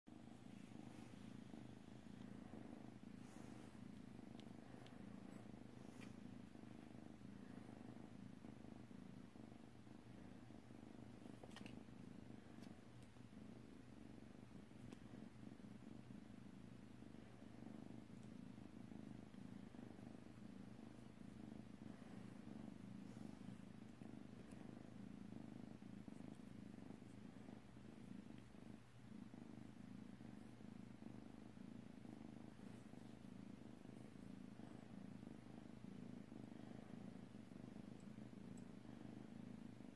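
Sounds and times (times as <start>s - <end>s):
kitten purring: 0.0s - 39.9s
faint ticks: 14.8s - 15.1s.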